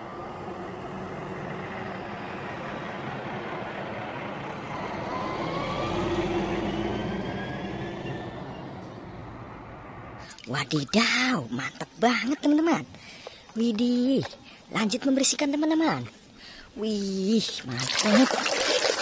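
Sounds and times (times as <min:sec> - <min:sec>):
truck driving past: 0:00.0 - 0:10.3.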